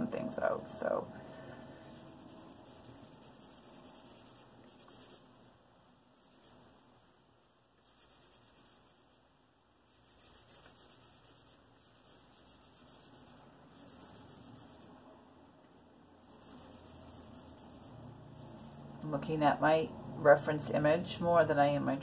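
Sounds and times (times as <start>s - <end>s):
charcoal scratching on paper: 1.8s - 5.2s, 6.2s - 6.6s, 7.8s - 9.2s, 9.8s - 14.9s, 16.2s - 18.9s.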